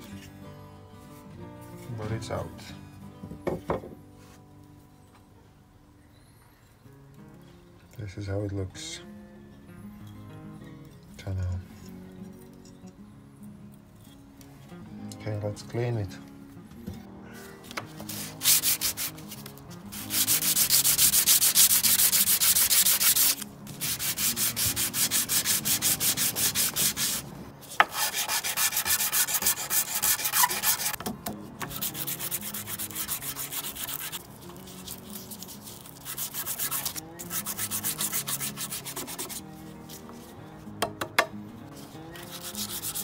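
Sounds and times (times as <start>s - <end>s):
metal scraping on sandpaper: 17.9s - 31.0s, 31.6s - 40.4s, 41.7s - 43.0s.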